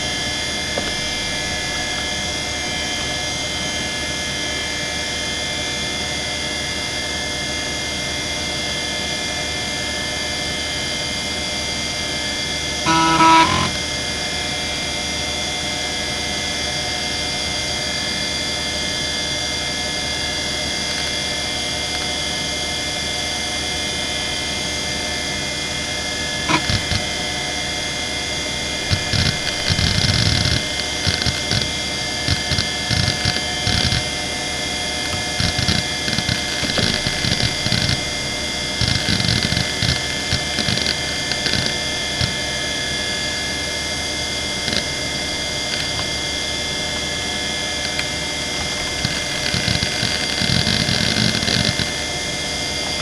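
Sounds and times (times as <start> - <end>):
hard drive whine: 0.0 - 53.0
hard drive buzz: 12.0 - 14.6, 23.7 - 53.0
hard drive seek clicks: 12.9 - 13.9, 26.4 - 27.5, 28.6 - 34.2, 35.0 - 42.4, 44.6 - 45.0, 47.7 - 52.0.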